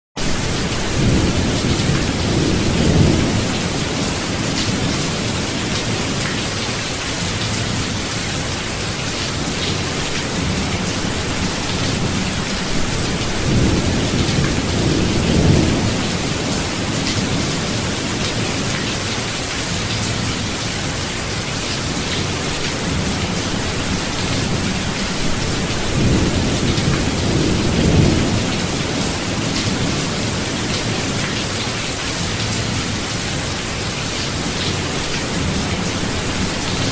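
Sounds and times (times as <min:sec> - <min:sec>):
steady rain: 0:00.2 - 0:36.9
thunder rolling: 0:10.4 - 0:18.4.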